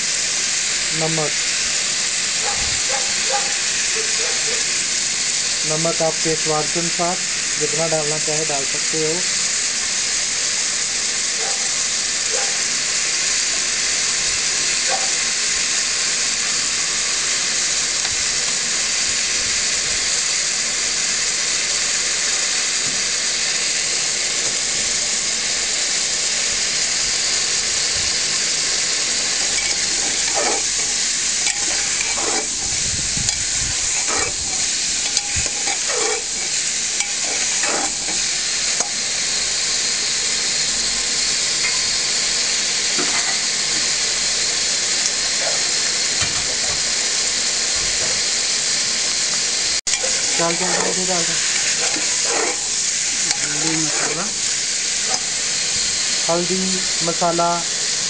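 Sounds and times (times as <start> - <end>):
chicken and onions sizzling: 0.0 - 58.0
ladle scraping and knocking pot: 29.4 - 39.0.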